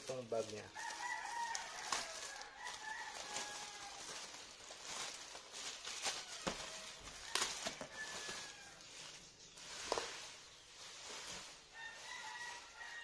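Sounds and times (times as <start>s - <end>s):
plastic packaging crinkling: 0.0s - 13.0s
rooster crowing: 0.7s - 4.4s, 6.1s - 9.1s, 11.7s - 13.0s.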